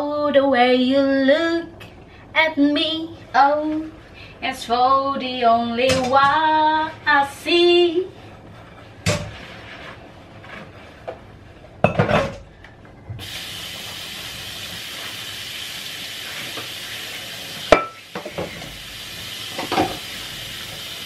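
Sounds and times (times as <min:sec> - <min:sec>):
food sizzling in a pan: 0:13.2 - 0:21.0.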